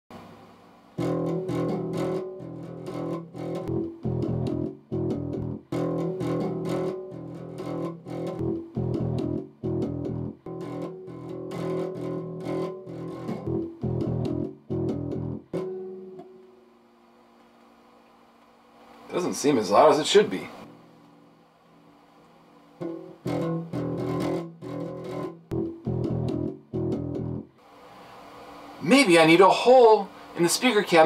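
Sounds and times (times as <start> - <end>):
electric bass guitar riff: 1.0 - 16.3, 22.8 - 27.6.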